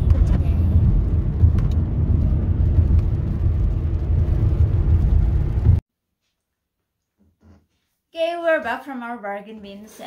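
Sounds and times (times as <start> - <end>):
car cabin road and engine noise: 0.0 - 5.8.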